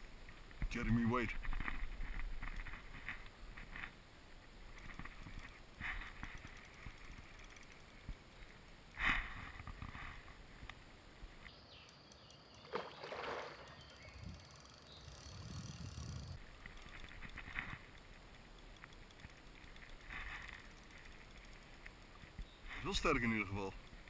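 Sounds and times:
short splashes and knocks: 12.6s - 13.9s
fish rolling at water surface: 12.6s - 14.7s.

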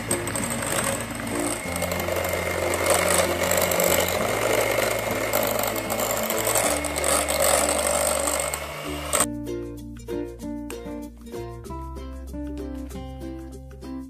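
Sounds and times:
electric hand mixer running: 0.0s - 9.3s
background music with bass: 0.0s - 14.0s.

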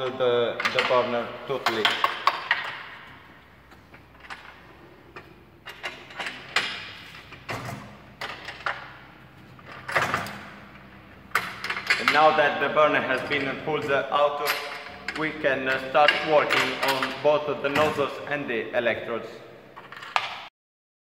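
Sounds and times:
metal clicks and knocks: 0.0s - 12.4s, 13.1s - 18.0s
metal sliding: 0.7s - 17.4s.

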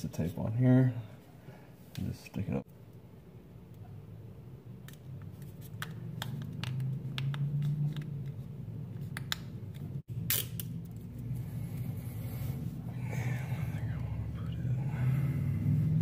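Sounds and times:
steady low hum: 0.0s - 16.0s
adhesive tape peeling: 9.7s - 11.0s.

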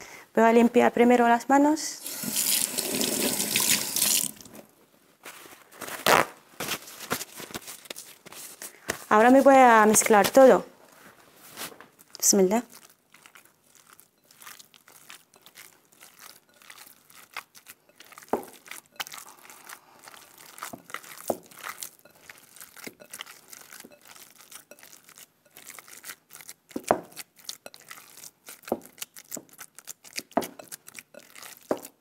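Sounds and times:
hands kneading minced meat: 6.6s - 32.0s
meat smacks: 12.8s - 32.0s.

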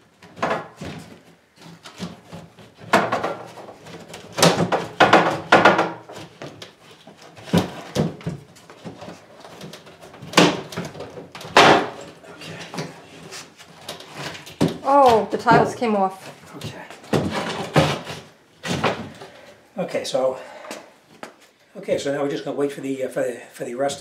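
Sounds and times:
wooden cabinet scraping and knocking: 0.2s - 19.4s.

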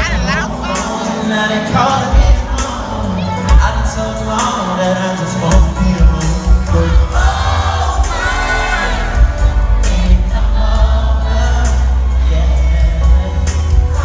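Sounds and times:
live band with heavy bass: 0.0s - 14.0s
voices singing: 0.0s - 14.0s.

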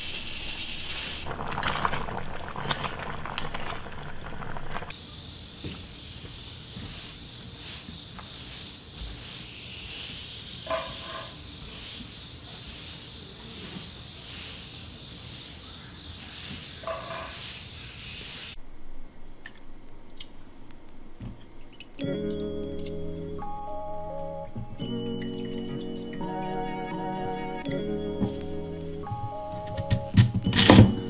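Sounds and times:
stew boiling and bubbling: 0.0s - 5.0s
high insect trill: 0.0s - 18.6s.

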